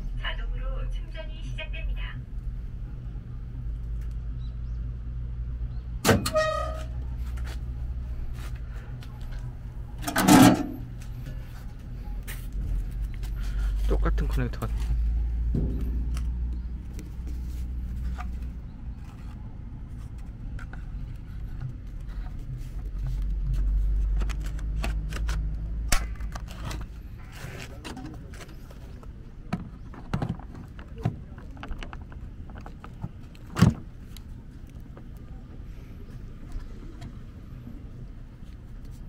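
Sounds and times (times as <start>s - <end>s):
low rumble: 14.7s - 19.1s.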